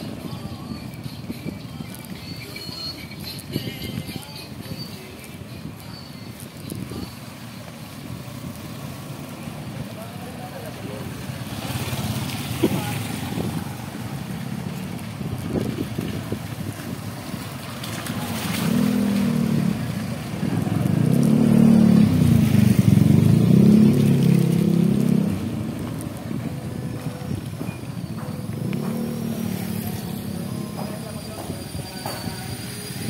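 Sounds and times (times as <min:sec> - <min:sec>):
traffic noise: 0:00.0 - 0:33.0
vehicle engine accelerating: 0:10.6 - 0:31.5.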